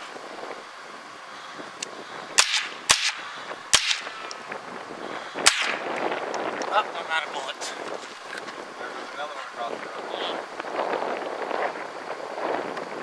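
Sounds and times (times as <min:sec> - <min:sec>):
rifle shots: 0:02.4 - 0:04.3, 0:05.4 - 0:06.0.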